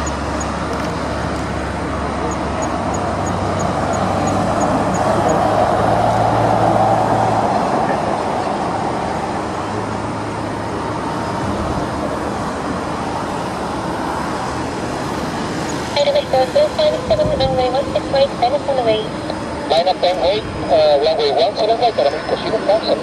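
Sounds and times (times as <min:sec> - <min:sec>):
distant jet engines rushing: 0:00.0 - 0:23.0.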